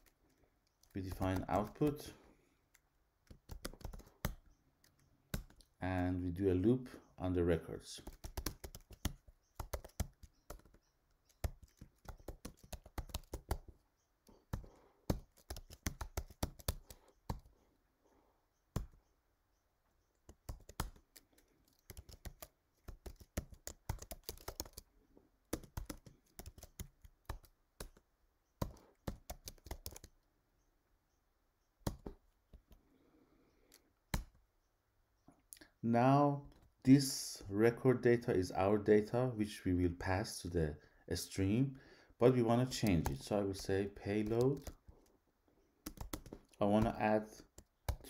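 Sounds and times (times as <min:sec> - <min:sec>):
computer keyboard typing: 0:00.0 - 0:02.0, 0:02.7 - 0:05.8, 0:08.0 - 0:13.8, 0:14.5 - 0:17.5, 0:18.7 - 0:19.0, 0:20.1 - 0:24.9, 0:25.5 - 0:28.0, 0:28.6 - 0:30.2, 0:31.8 - 0:32.2, 0:42.7 - 0:43.3, 0:44.1 - 0:45.1, 0:45.8 - 0:48.0.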